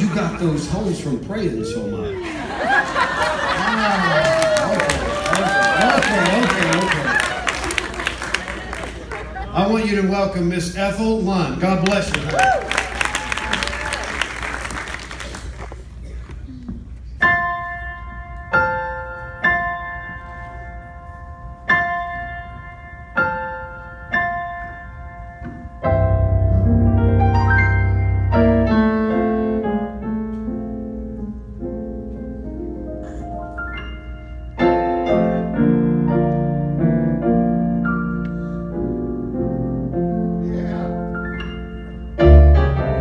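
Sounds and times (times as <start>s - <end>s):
piano chords: 16.8s - 43.0s.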